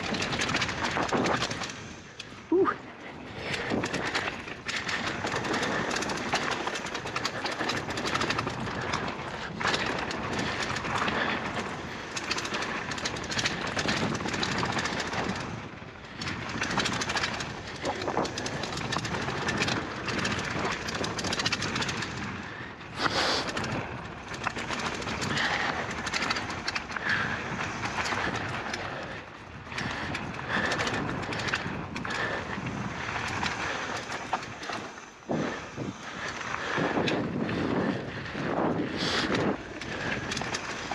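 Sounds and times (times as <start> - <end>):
chain and frame clatter: 0.0 - 2.4, 3.3 - 40.9
bike tyres rumbling over dirt: 0.0 - 40.9
wind on microphone: 23.0 - 40.9.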